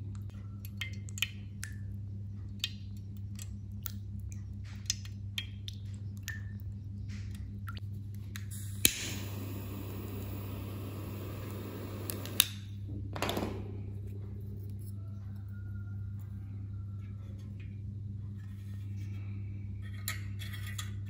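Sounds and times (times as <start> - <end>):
low hum: 6.3 - 21.0.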